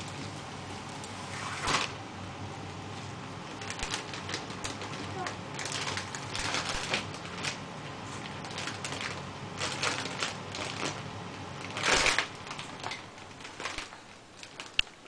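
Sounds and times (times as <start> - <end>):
plastic bag crinkling: 3.4 - 15.0.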